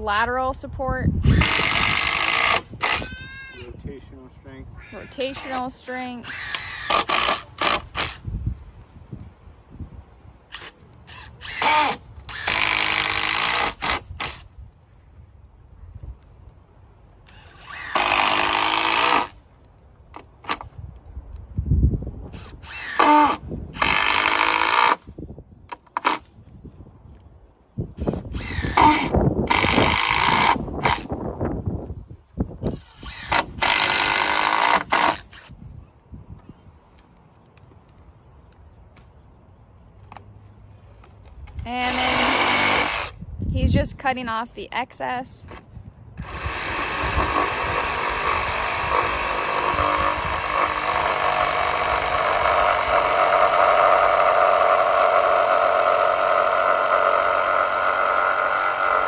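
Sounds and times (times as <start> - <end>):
impact driver driving screws: 5.3 - 8.3, 10.5 - 14.5, 17.3 - 19.4, 22.3 - 25.0, 28.0 - 31.1, 32.6 - 35.6.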